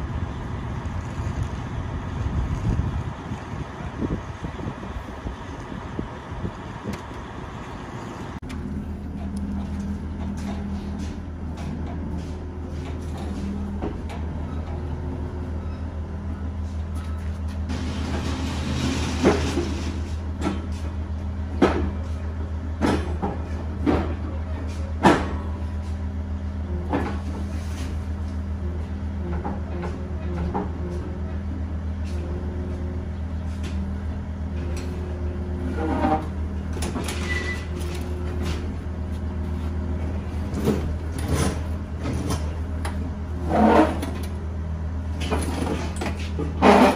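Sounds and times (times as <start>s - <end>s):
diesel engine idling: 0.0s - 18.8s.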